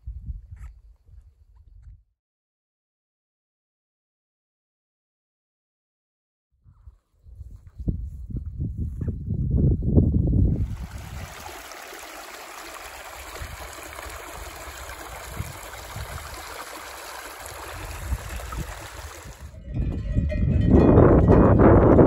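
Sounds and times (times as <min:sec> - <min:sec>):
wind buffeting microphone: 0:06.7 - 0:22.0
mountain stream rushing: 0:10.6 - 0:19.5.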